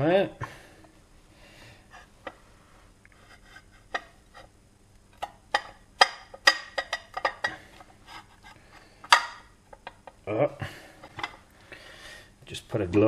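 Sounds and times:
metal casing clicks and knocks: 5.2 - 7.6.

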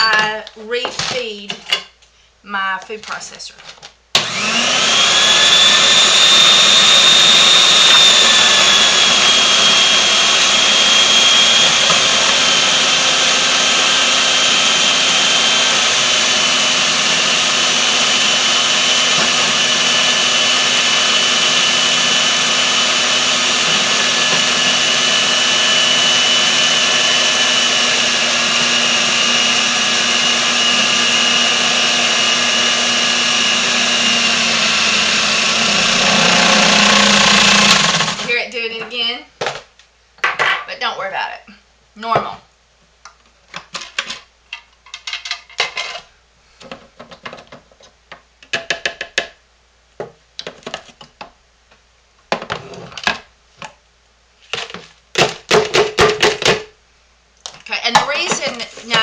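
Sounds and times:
food processor motor whining: 4.2 - 38.3.

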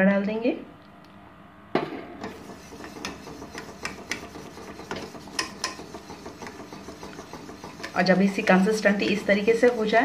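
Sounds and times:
whisk clinking against saucepan: 2.2 - 10.0.

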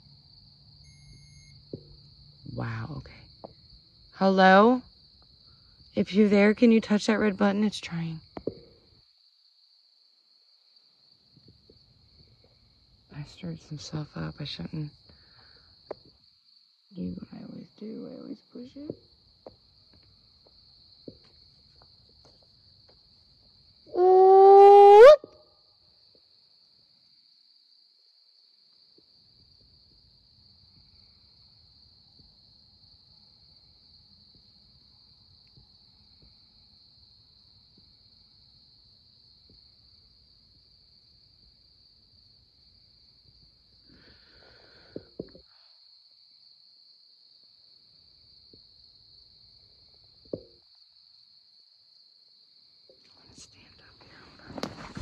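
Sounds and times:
crickets chirring: 0.0 - 55.0
soft rustles and clicks: 54.0 - 55.0.

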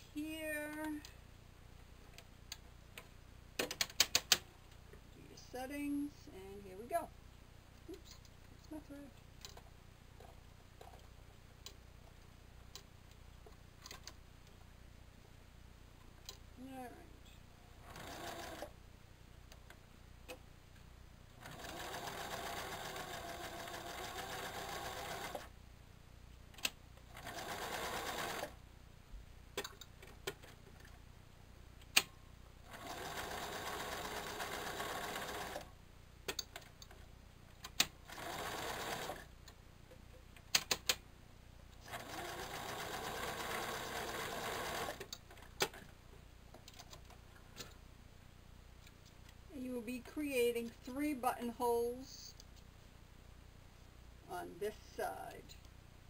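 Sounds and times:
electric sewing machine stitching: 17.8 - 18.7, 21.4 - 25.5, 27.2 - 28.5, 32.7 - 35.7, 38.1 - 39.3, 41.8 - 45.1.

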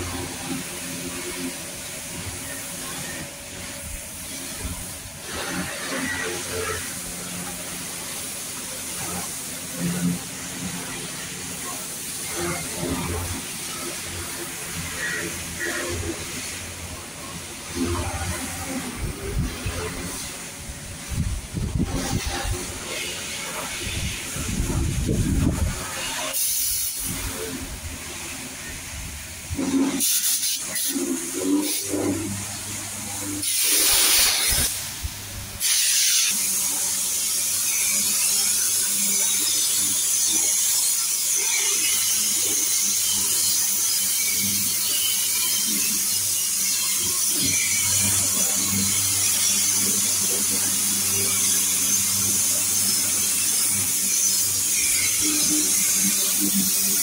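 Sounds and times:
electric pump hum: 0.0 - 57.0
pressure washer spray hissing: 0.0 - 57.0.

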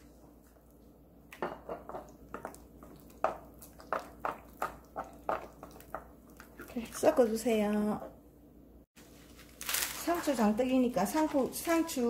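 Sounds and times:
spoon stirring thick batter: 1.6 - 8.0.

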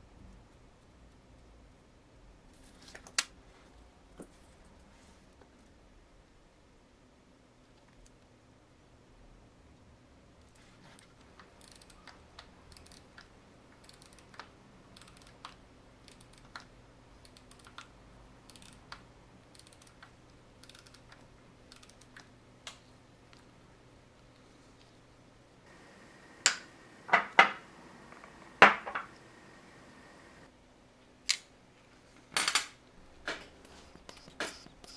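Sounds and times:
tweezers clicking on metal parts: 11.4 - 17.9, 18.5 - 22.3.

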